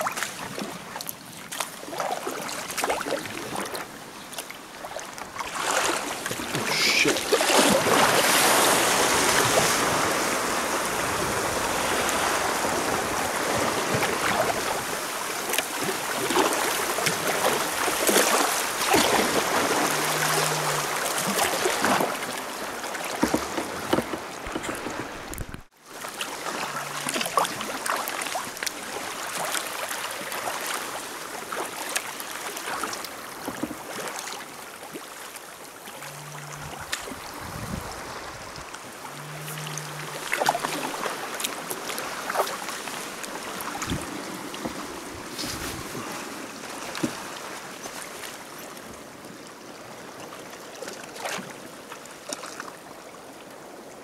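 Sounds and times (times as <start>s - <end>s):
paddle strokes splashing: 0.0s - 48.8s
water rushing along kayak hull: 0.0s - 54.0s.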